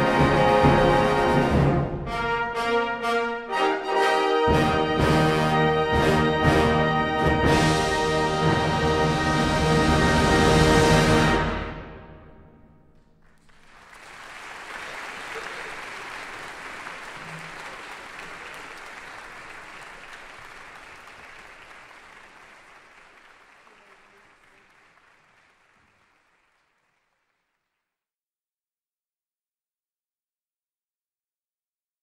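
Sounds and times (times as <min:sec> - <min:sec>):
audience applauding: 0:13.2 - 0:27.8.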